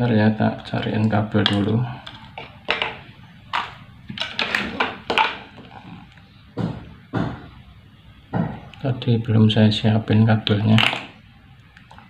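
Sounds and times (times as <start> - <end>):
knocks and rustles of rummaging: 1.4 - 7.4.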